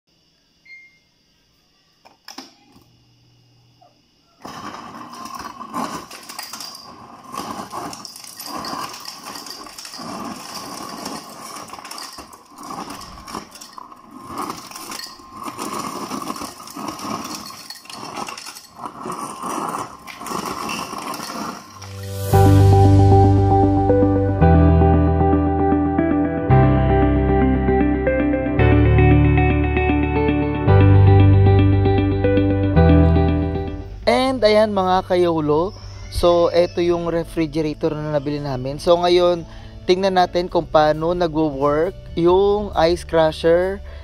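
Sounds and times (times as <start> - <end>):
ice chips clattering into glass: 4.4 - 22.3
ice dispenser running: 4.4 - 22.7.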